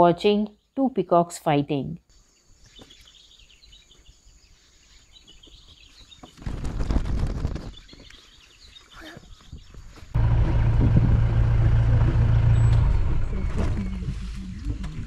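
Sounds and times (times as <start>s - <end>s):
small birds chirping: 0.1s - 1.3s, 2.0s - 10.2s
low rumble: 10.2s - 15.0s.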